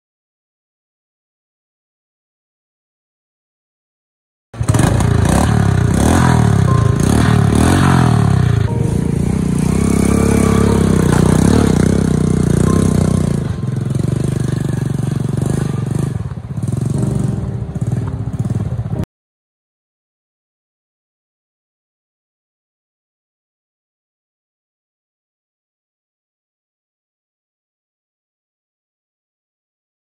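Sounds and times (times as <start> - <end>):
small engine revving: 4.6 - 19.0.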